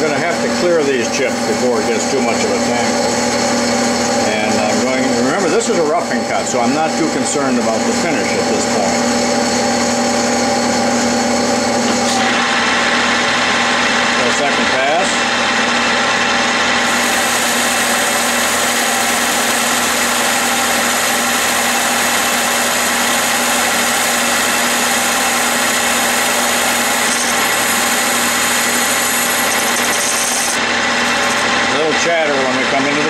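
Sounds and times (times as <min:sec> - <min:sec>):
lathe motor hum: 0:00.0 - 0:33.0
tool chatter: 0:00.0 - 0:33.0
hiss of metal cutting: 0:16.9 - 0:21.3.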